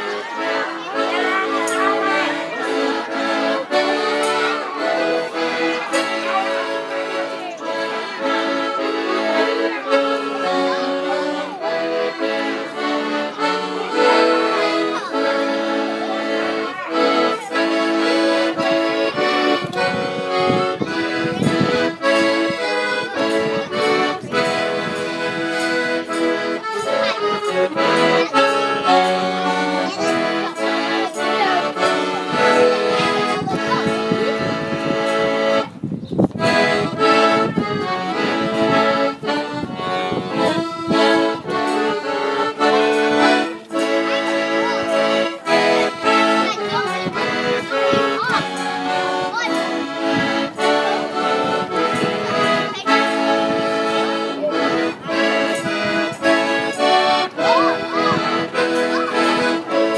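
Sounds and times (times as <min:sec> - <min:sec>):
steady beat: 0:00.0 - 0:35.5, 0:36.4 - 0:59.9
voices singing: 0:00.0 - 0:35.8, 0:36.4 - 0:59.9
reedy organ chords: 0:00.0 - 0:59.9.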